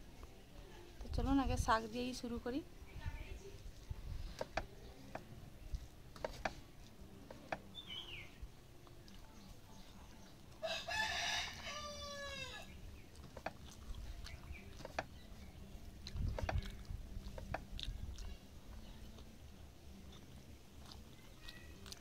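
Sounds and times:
faint clicks of eating by hand: 0:08.8 - 0:09.5, 0:13.1 - 0:19.4, 0:20.0 - 0:22.0
rooster crowing: 0:10.6 - 0:12.7.

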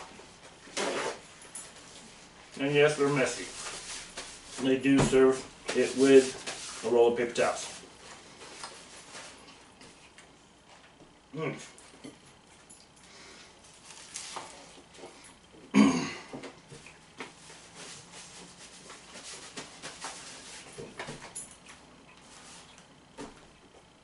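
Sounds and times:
paper towel rustling: 0:00.0 - 0:09.5, 0:13.7 - 0:14.8, 0:17.3 - 0:21.2
person chewing: 0:16.6 - 0:17.2.

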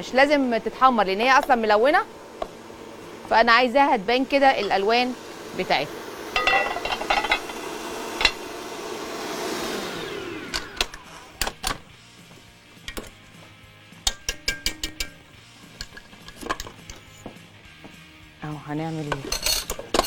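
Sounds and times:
stand mixer running: 0:04.9 - 0:11.2.

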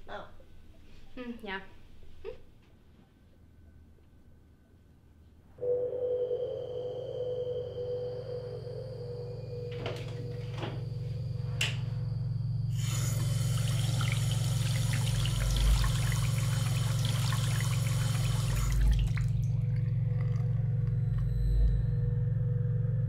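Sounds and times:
low steady hum: 0:00.0 - 0:23.0
faucet running into sink: 0:12.8 - 0:20.4
hands washing under water: 0:13.2 - 0:20.4.

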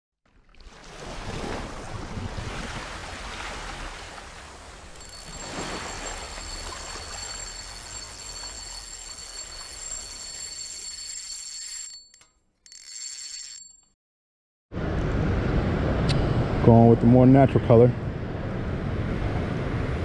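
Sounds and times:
water splashing and churning: 0:00.2 - 0:08.0
steady high ringing tone: 0:05.0 - 0:14.0.

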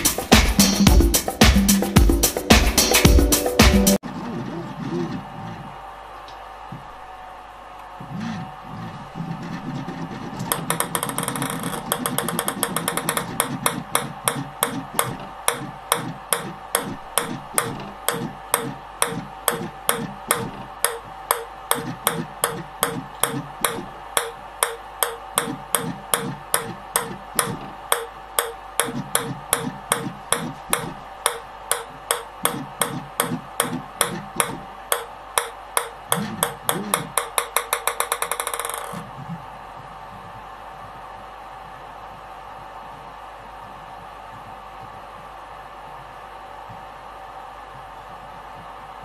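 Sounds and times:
faint steady hum: 0:00.0 - 0:49.0
ping pong ball bouncing on plastic: 0:10.4 - 0:39.1.

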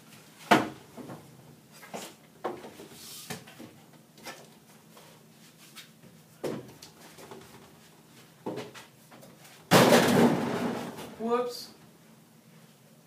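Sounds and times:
objects knocking and bumping: 0:09.7 - 0:11.2.

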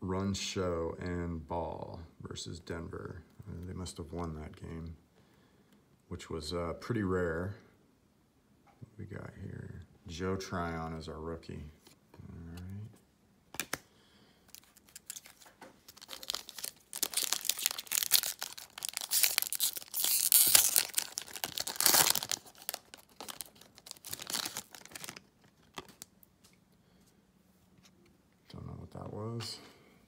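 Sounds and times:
wrapper tearing and crinkling: 0:14.5 - 0:26.1.

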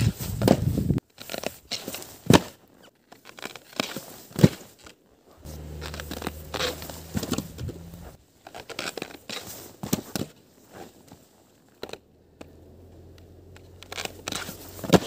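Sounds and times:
low steady hum: 0:05.4 - 0:08.2.

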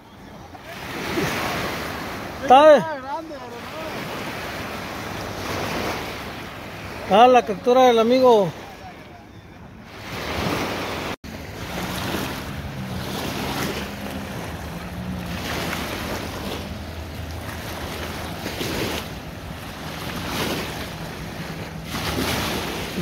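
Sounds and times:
small waves washing on shore: 0:00.0 - 0:23.0
wind on microphone: 0:09.9 - 0:23.0.

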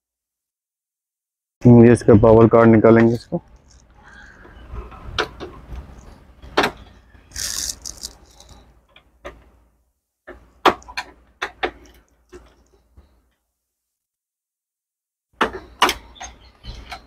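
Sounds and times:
screwdriver scrape: 0:07.3 - 0:08.6
small metal rattles: 0:07.3 - 0:08.7.

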